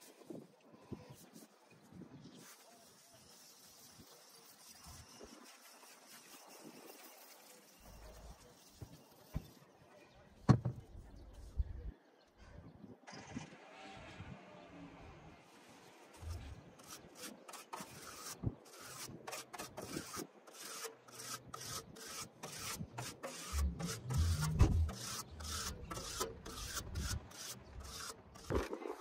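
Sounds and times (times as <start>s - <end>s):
tool rasping on coil fins: 16.2s - 28.7s
dull low bump: 23.5s - 25.5s.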